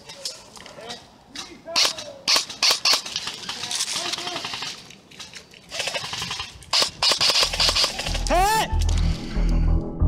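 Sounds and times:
airsoft guns firing: 1.8 - 4.8, 5.7 - 8.4.

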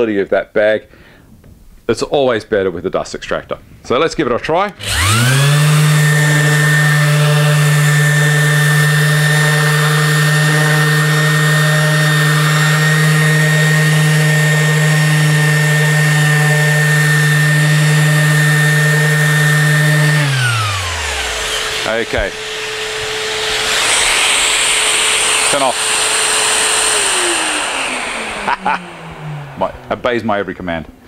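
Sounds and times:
orbital sander running on wood: 4.8 - 30.6.

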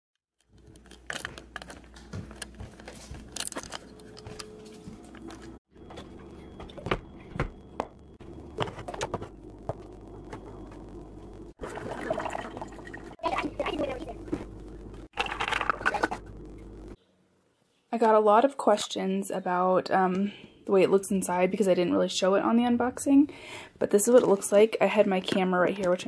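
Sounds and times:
household knocks and clinks: 0.5 - 10.8
footsteps: 0.5 - 11.0
liquid-like noise: 11.6 - 14.4.

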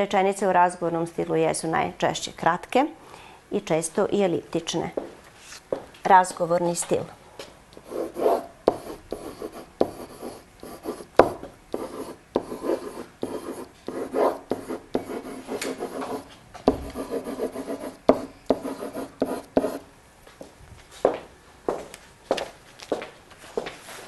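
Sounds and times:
pen scratching on whiteboard: 7.8 - 19.8
pen tapping on whiteboard: 7.8 - 19.8.

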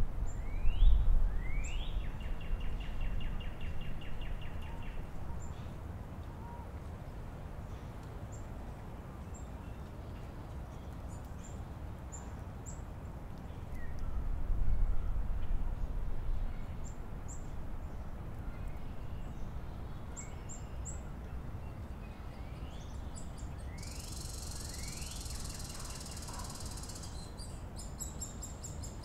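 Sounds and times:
songbirds whistling and trilling: 0.3 - 5.8, 18.5 - 29.0
faint high bird chips: 23.8 - 27.2.

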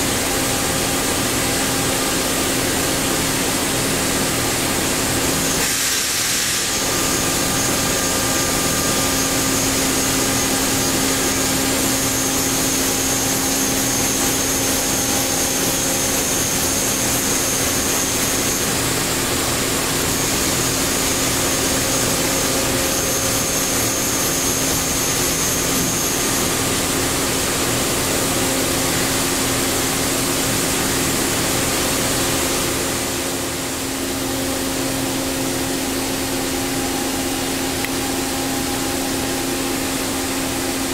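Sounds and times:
thin high whine: 32.7 - 40.9.

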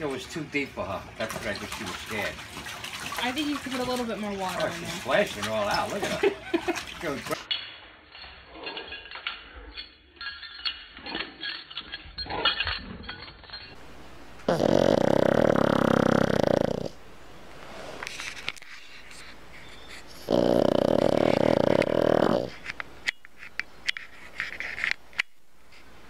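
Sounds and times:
dog snoring loudly: 14.4 - 17.0, 20.1 - 22.6.

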